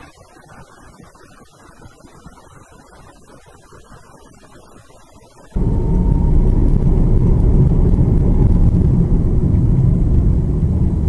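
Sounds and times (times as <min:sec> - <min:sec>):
car road and engine noise: 0:05.5 - 0:11.0.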